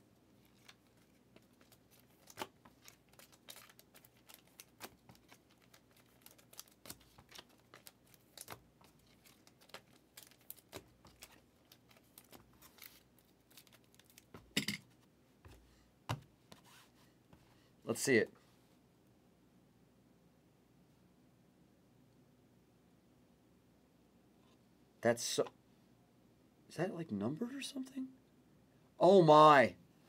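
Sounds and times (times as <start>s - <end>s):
trading cards and wrappers rustling: 0.4s - 14.6s.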